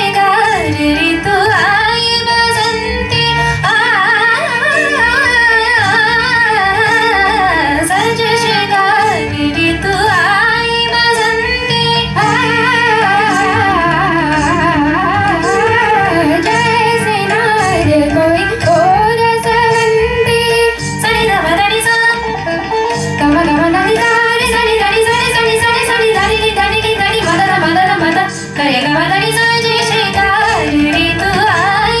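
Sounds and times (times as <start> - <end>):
instrumental accompaniment: 0.0 - 32.0
woman singing: 0.0 - 32.0.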